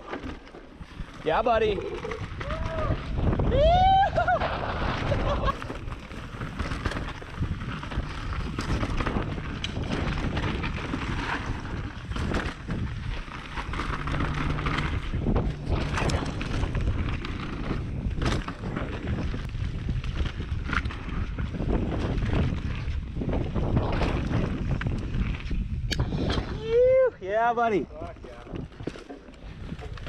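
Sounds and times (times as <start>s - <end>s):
bike rattling clicks and knocks: 0.0s - 3.4s, 4.2s - 26.6s, 28.0s - 30.0s
wind buffeting microphone: 0.8s - 30.0s
tyres rolling over dirt and leaves: 4.1s - 25.6s.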